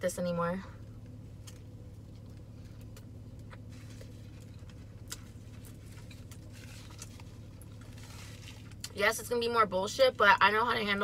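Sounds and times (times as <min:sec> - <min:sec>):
steady low hum: 0:00.0 - 0:11.0
person chewing crunchy food: 0:01.4 - 0:09.0.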